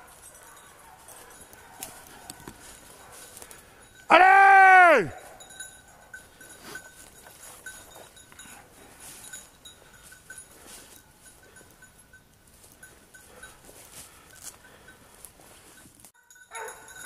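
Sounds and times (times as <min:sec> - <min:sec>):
small bell tinkling: 0:00.0 - 0:01.8, 0:02.6 - 0:04.1, 0:05.1 - 0:17.0
footsteps through undergrowth: 0:00.0 - 0:03.6.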